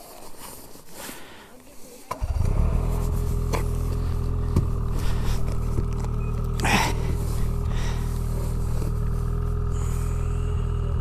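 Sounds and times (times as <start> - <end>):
snowmobile engine running: 2.2 - 11.0.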